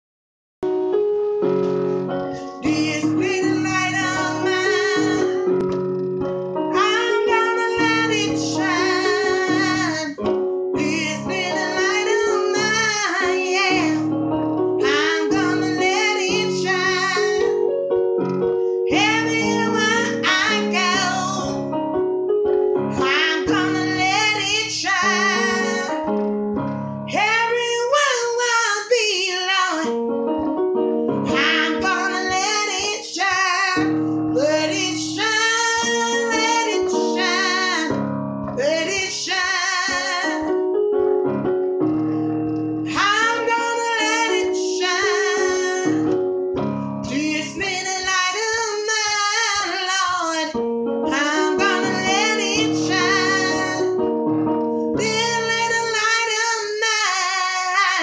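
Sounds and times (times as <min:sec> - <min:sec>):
electronic keyboard chords: 0:00.6 - 0:58.0
woman singing gospel: 0:02.4 - 0:05.5, 0:06.7 - 0:10.2, 0:10.8 - 0:14.1, 0:14.8 - 0:17.6, 0:18.9 - 0:21.6, 0:23.0 - 0:26.0, 0:27.1 - 0:29.9, 0:31.3 - 0:40.7, 0:42.9 - 0:46.2, 0:47.0 - 0:54.0, 0:55.0 - 0:58.0.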